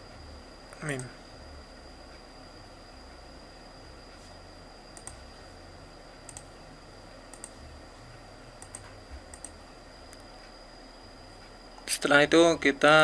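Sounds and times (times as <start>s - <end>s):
faint high whine and hiss: 0.0s - 13.0s
computer mouse clicks: 4.9s - 5.2s, 6.3s - 6.5s, 7.3s - 7.6s, 8.6s - 10.6s.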